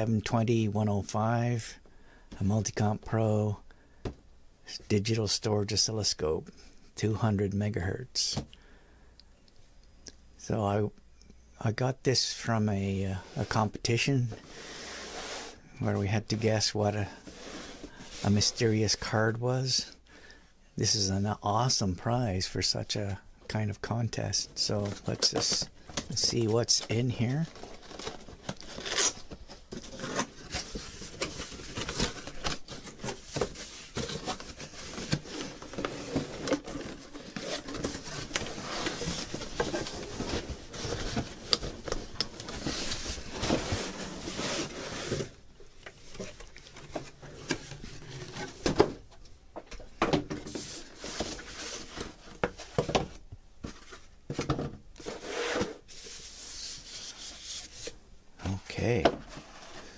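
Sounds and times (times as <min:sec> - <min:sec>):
cardboard rubbing and scraping: 0:14.9 - 0:15.6, 0:26.2 - 0:45.4, 0:55.0 - 0:58.0.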